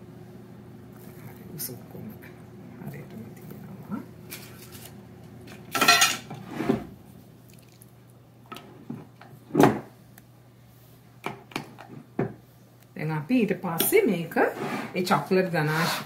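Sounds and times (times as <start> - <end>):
metal utensils clinking on glass: 5.8 - 6.3.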